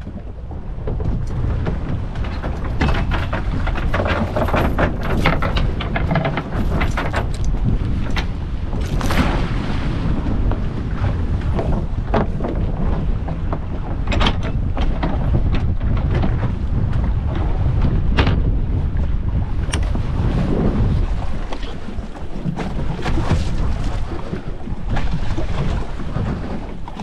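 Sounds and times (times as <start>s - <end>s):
low wind rumble on microphone: 0.0s - 27.0s
anchor chain rattling and clanking: 1.0s - 9.2s, 13.4s - 16.4s.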